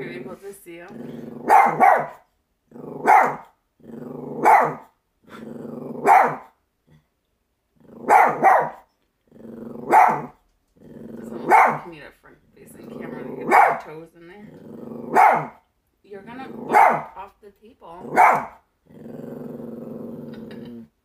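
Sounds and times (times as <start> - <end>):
small dog growling: 0.0 - 1.8, 2.7 - 3.2, 3.8 - 4.6, 5.2 - 6.2, 7.8 - 8.5, 9.2 - 11.9, 12.8 - 13.8, 14.4 - 15.5, 16.3 - 17.2, 17.9 - 21.0
small dog barking: 1.4 - 2.2, 3.0 - 3.5, 4.4 - 4.9, 6.0 - 6.5, 8.0 - 8.8, 9.8 - 10.4, 11.4 - 11.9, 13.4 - 13.9, 15.1 - 15.6, 16.7 - 17.2, 18.1 - 18.6.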